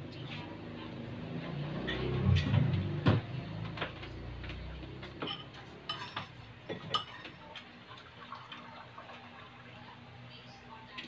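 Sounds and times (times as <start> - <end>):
metal spoon clinking on ceramic: 5.2 - 7.3.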